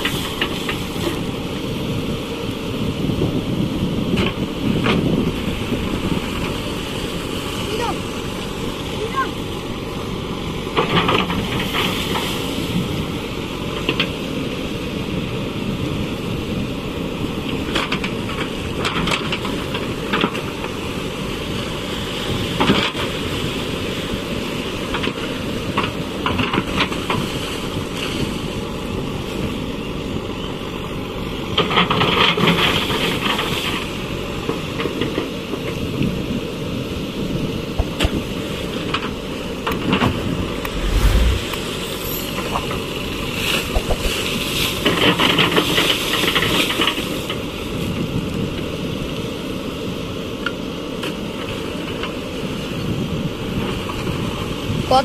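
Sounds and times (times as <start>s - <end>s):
wind noise on microphone: 40.5s - 42.9s.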